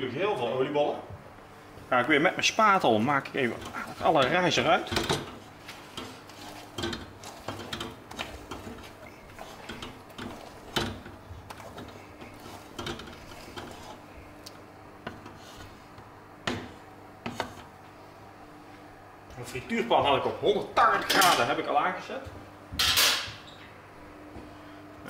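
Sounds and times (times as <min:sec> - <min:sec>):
spatula scraping batter in bowl: 0:03.4 - 0:14.4.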